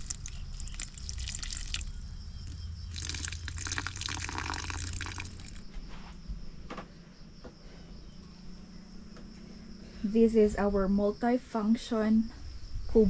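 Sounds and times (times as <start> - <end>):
water trickling onto soil: 0.0 - 5.6.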